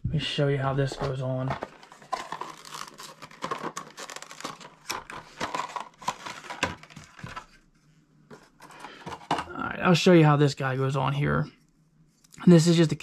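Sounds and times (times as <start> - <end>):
plastic packaging crinkling: 0.9 - 7.6.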